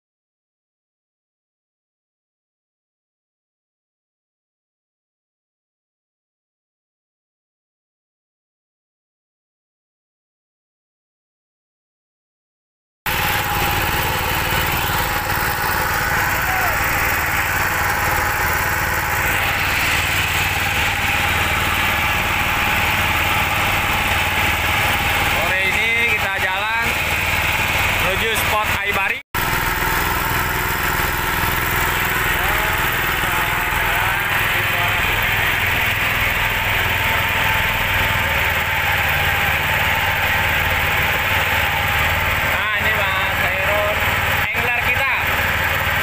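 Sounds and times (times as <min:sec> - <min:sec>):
boat engine running: 0:13.1 - 0:46.0.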